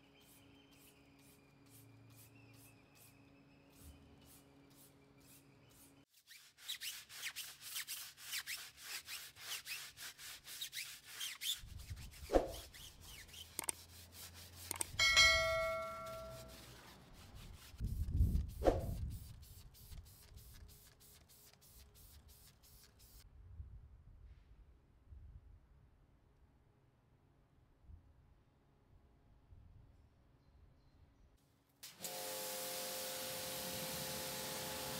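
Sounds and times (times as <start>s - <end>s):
brush scrubbing a tyre: 3.8s - 23.2s, 33.4s - 34.9s
metallic ding: 15.0s - 16.6s.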